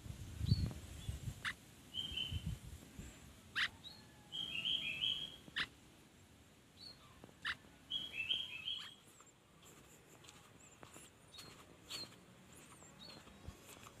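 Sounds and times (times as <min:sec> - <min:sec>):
swallow twittering: 0:01.4 - 0:02.5, 0:03.6 - 0:05.7, 0:06.8 - 0:09.2.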